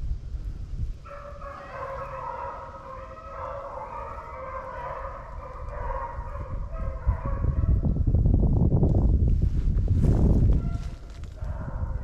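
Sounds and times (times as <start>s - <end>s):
dogs baying and howling: 1.0s - 7.8s, 10.6s - 12.0s.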